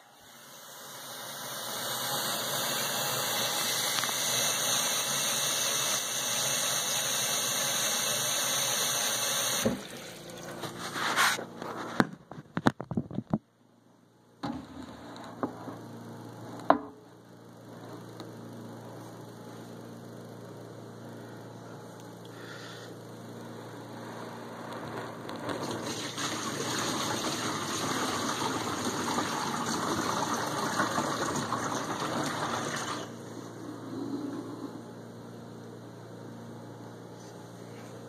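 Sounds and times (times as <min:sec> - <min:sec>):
water spraying inside dishwasher: 0:00.0 - 0:11.4, 0:25.5 - 0:33.4
dishwasher humming: 0:00.0 - 0:12.1, 0:14.4 - 0:17.1, 0:25.5 - 0:35.1.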